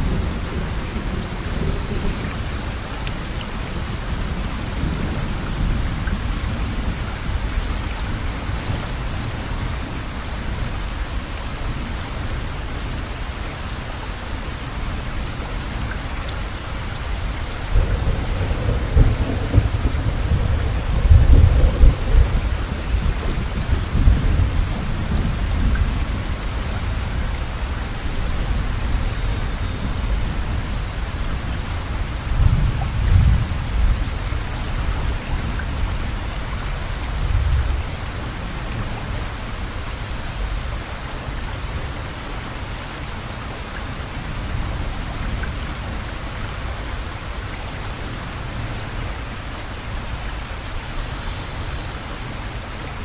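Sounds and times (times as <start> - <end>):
steady rainfall: 0.0 - 53.0
thunder rumbling: 17.6 - 27.6.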